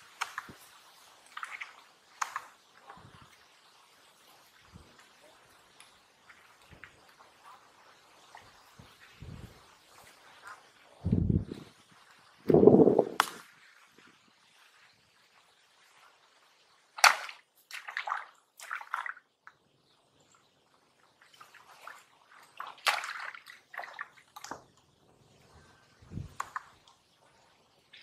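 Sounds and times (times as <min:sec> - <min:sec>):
splashes in shallow water: 0:16.9 - 0:19.3, 0:21.2 - 0:24.5.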